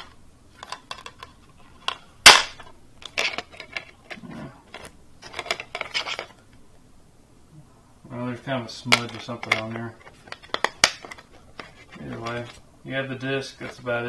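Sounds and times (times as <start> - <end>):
plastic case clicking and rattling: 0.0 - 2.4, 3.0 - 6.4, 8.9 - 12.6
plastic case snapping: 8.9 - 12.5.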